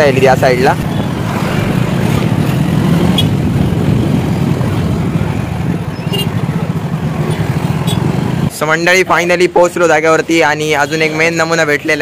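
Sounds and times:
motorbike engine and wind rumble: 0.0 - 8.5.

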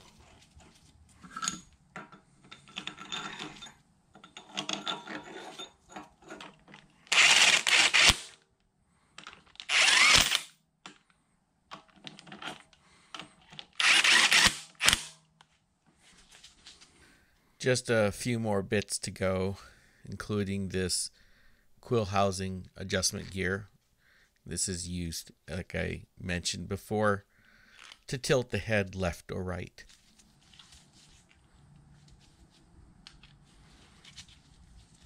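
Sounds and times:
cordless power driver running: 7.1 - 8.3, 9.7 - 10.5, 13.8 - 15.1.

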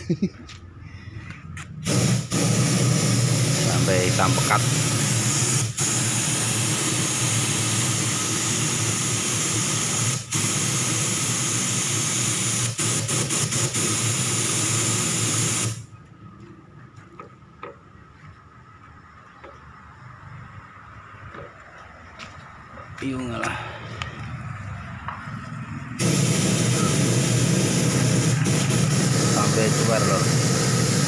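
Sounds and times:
compressed air hissing from hose: 1.6 - 15.9, 26.0 - 31.0.

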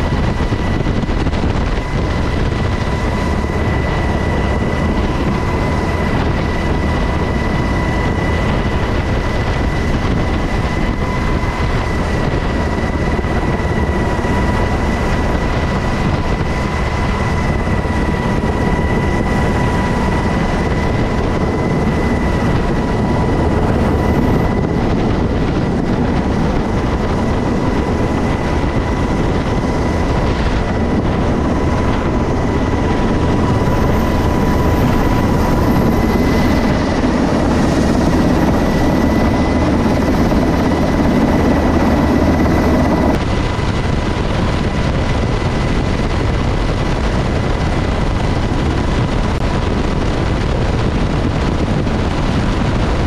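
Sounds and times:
constant high whine: 0.0 - 53.0
helicopter rotor and turbine noise: 0.0 - 53.0.

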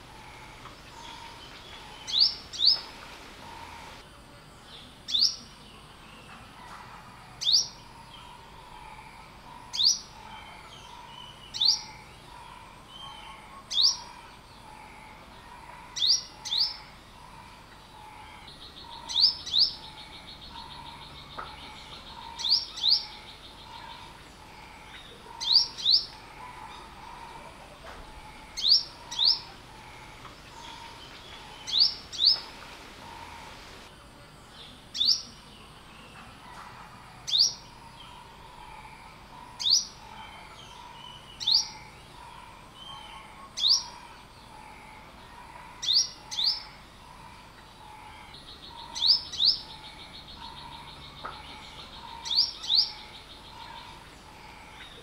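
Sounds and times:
sunbird calling: 0.0 - 4.0, 7.4 - 33.9.

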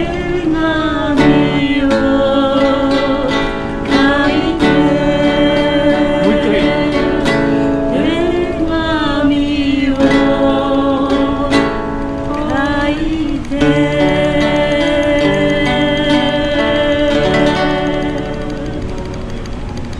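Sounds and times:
acoustic guitar strumming chords: 0.0 - 19.9
voices singing: 0.0 - 19.9.

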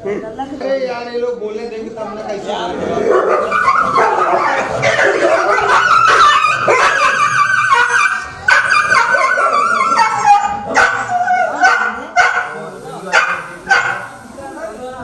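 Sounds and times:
dogs whining and yelping: 3.2 - 11.9.

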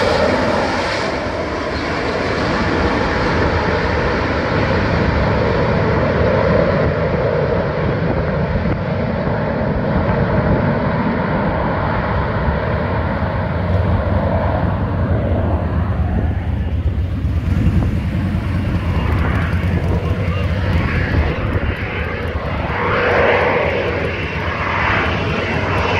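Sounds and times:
jet hovering: 13.2 - 25.9.

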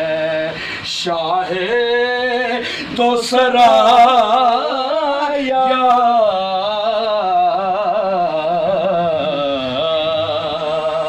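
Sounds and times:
man singing: 0.0 - 11.0.

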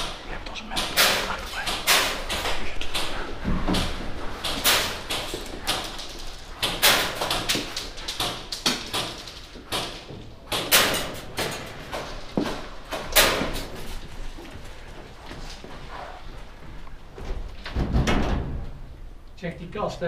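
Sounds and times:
echoing knocks and bangs: 0.0 - 13.8.

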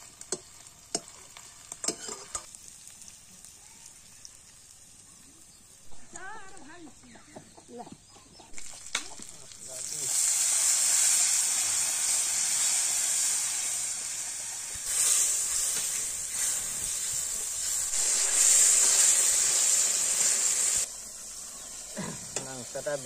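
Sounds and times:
ladle stirring in a wok: 0.0 - 2.5
hot oil sizzling in a wok: 0.0 - 6.8, 8.5 - 23.0.

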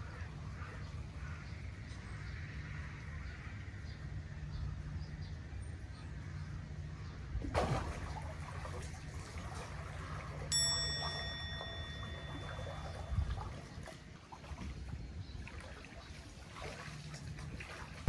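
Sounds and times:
net splashing into water: 7.4 - 10.6, 12.2 - 18.0
sharp ringing ding: 10.5 - 13.5.

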